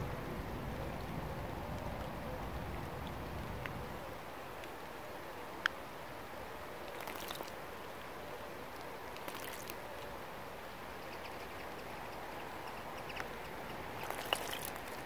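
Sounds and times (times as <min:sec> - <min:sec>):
rain hiss: 0:00.0 - 0:15.0
bird splashing in water: 0:06.8 - 0:07.6, 0:09.1 - 0:09.8, 0:13.8 - 0:15.0.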